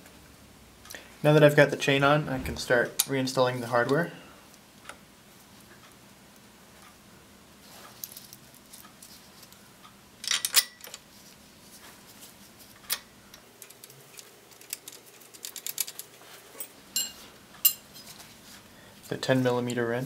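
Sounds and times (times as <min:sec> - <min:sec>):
small metal hardware clinking: 0:10.2 - 0:11.0, 0:16.6 - 0:18.0.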